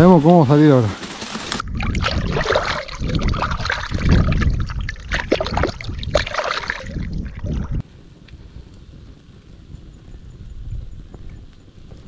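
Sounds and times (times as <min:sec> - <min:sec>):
water trickling and splashing: 0:01.0 - 0:07.8.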